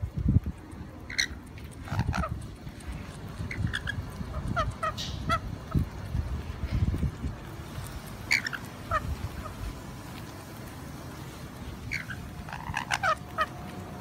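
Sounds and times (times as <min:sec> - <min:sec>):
lorikeets screeching: 0:03.4 - 0:05.4, 0:08.2 - 0:09.6, 0:11.7 - 0:13.6.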